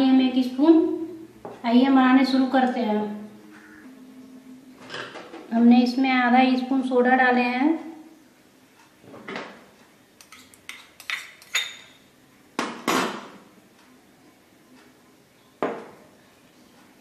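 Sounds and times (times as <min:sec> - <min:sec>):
metal spoon clinking on steel bowl: 0:10.2 - 0:12.1.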